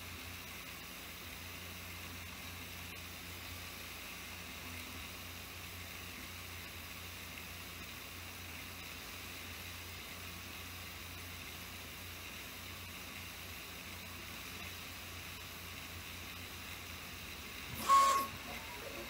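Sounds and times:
printer fan hiss and hum: 0:00.0 - 0:19.0
stepper motor whine: 0:17.7 - 0:19.0.

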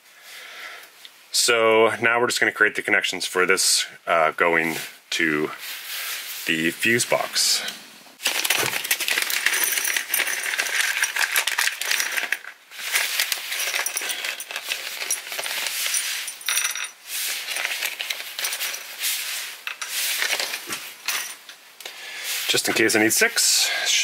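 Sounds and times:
metal connectors clinking in plastic: 0:08.2 - 0:19.0, 0:19.6 - 0:21.4.

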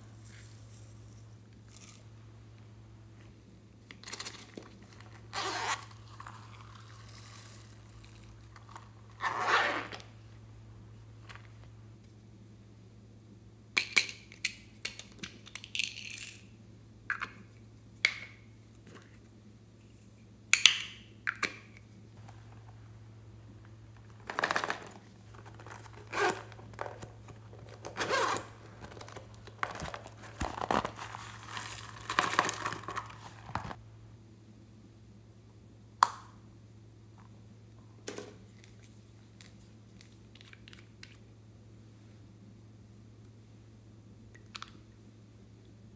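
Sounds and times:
faint low hum: 0:00.0 - 0:45.9
zipper being pulled: 0:05.3 - 0:06.4, 0:09.2 - 0:10.1, 0:24.3 - 0:26.8, 0:27.8 - 0:28.9.

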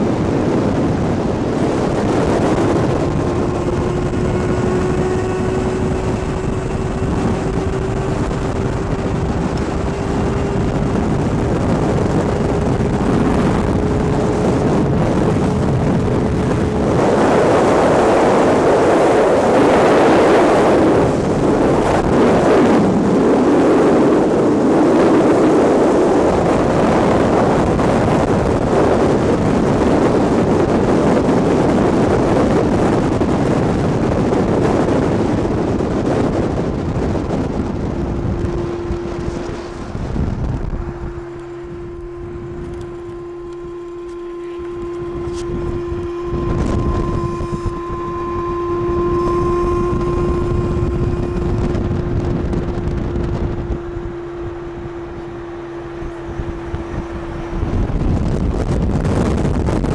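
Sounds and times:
steady hum: 0:00.0 - 0:59.9
vehicle road noise: 0:00.0 - 0:59.9
wind rushing over microphone: 0:00.0 - 0:59.9.

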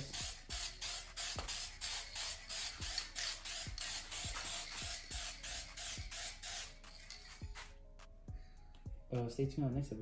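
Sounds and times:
spray paint can hissing: 0:00.0 - 0:07.7.

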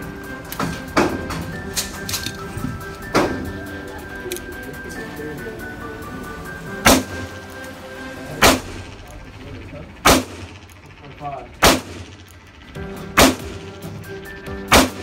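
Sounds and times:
gunshots with echo: 0:06.8 - 0:07.3, 0:08.4 - 0:09.0, 0:10.0 - 0:10.6, 0:11.6 - 0:12.3, 0:13.1 - 0:13.8, 0:14.7 - 0:15.0.

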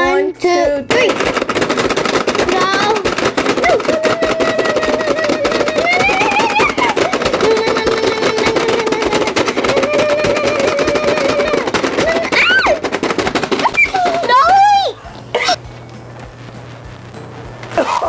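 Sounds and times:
plastic buttons clicking rapidly: 0:00.9 - 0:14.8.

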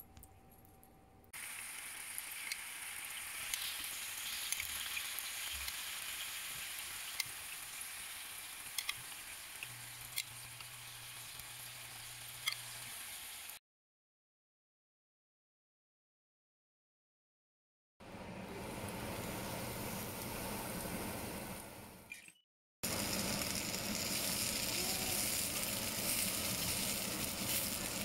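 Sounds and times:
chicken sizzling in hot oil: 0:01.4 - 0:13.6, 0:18.1 - 0:22.1, 0:22.8 - 0:28.0.

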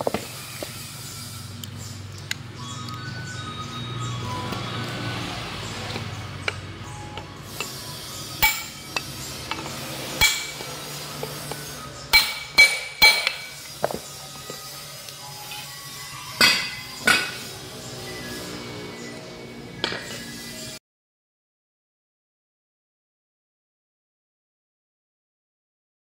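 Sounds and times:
hammer striking steel punch: 0:08.4 - 0:14.0, 0:16.4 - 0:17.5.

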